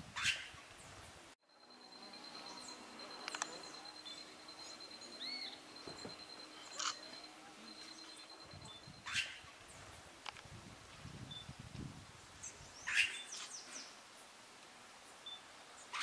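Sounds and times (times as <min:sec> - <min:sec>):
songbird chip notes: 0:01.5 - 0:10.0.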